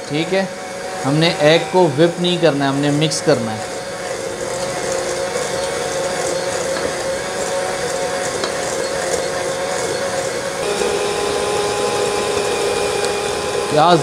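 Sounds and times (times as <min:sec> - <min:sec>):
electric hand mixer whining: 0:00.0 - 0:14.0.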